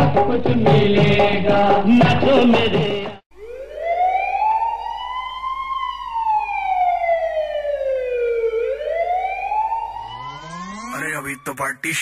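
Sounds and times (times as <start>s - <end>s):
siren rising and falling: 3.4s - 12.0s.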